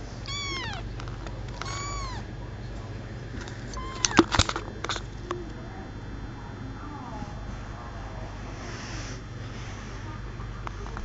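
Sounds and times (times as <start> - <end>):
kitten mewing: 0.2 - 0.9, 1.6 - 2.3, 3.7 - 4.4.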